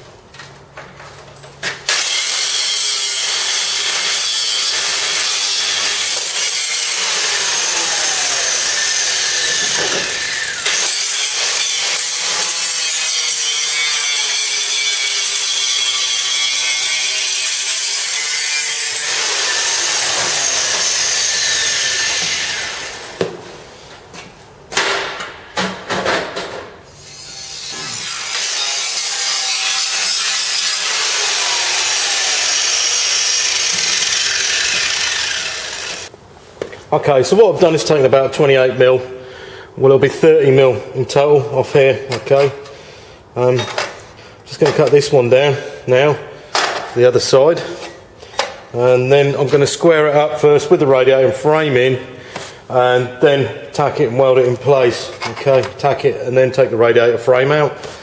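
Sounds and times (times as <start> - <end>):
angle grinder cutting steel: 1.9 - 23.2, 27.0 - 36.1.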